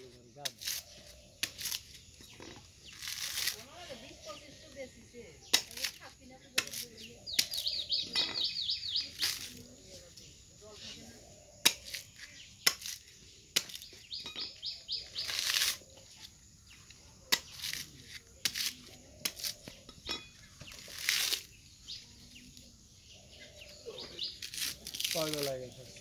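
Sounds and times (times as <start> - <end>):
husk fibres ripping: 0.5 - 3.7, 15.1 - 15.9, 20.7 - 21.6, 24.2 - 25.6.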